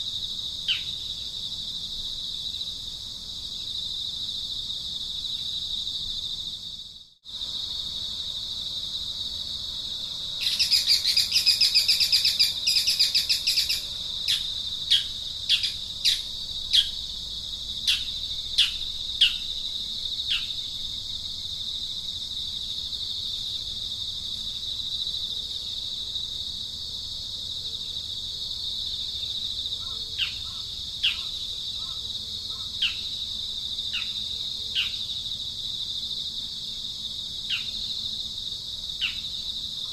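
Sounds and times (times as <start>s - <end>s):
high-pitched insect trill: 0.0s - 39.9s
birds calling: 10.4s - 17.0s.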